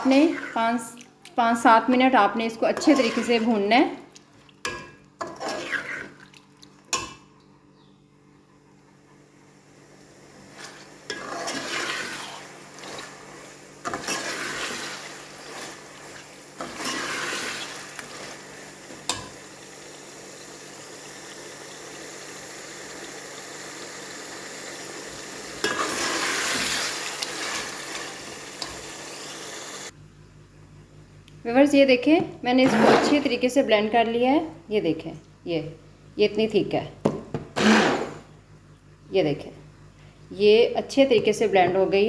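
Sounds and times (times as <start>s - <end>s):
metal spoon stirring and scraping: 0.0s - 0.9s, 2.5s - 3.7s, 4.7s - 6.3s, 10.5s - 18.4s
chicken sizzling in oil: 10.7s - 29.9s.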